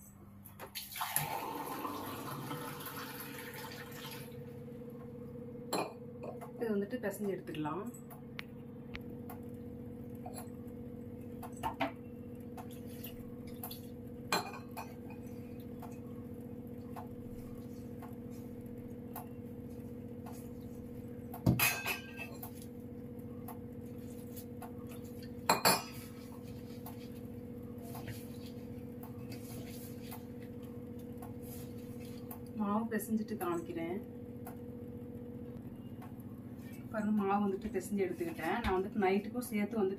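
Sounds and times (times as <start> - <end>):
steady hum: 0.0 - 39.9
dough being kneaded by hand: 16.8 - 21.6, 23.5 - 32.8.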